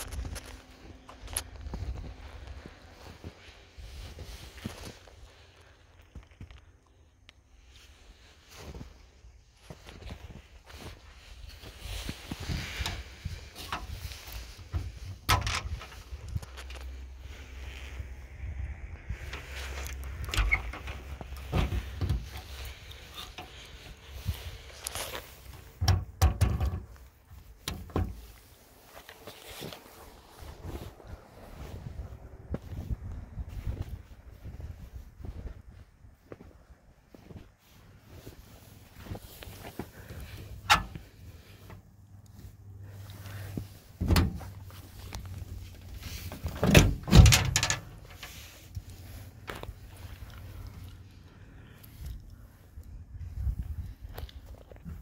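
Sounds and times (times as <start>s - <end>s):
wind rumbling on microphone: 10.8s - 25.0s, 30.1s - 36.8s, 51.9s - 55.0s
metal latch clicks and clunks: 14.7s - 16.0s, 20.2s - 22.4s, 25.8s - 27.0s, 40.6s - 41.1s, 44.0s - 44.5s, 46.4s - 48.3s
steel door swinging open with clunks: 44.0s - 44.6s, 46.4s - 48.1s.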